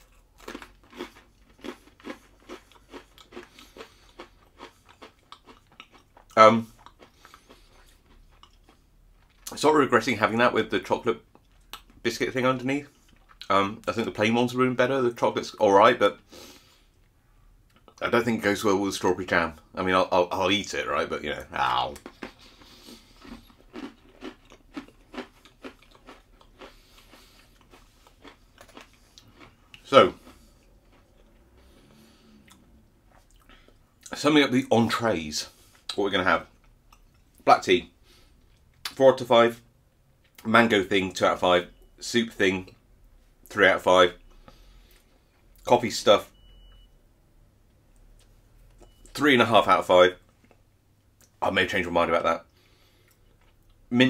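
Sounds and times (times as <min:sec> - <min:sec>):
person chewing crunchy biscuit: 0:00.0 - 0:09.5, 0:12.9 - 0:13.5, 0:21.4 - 0:34.1, 0:52.4 - 0:53.9.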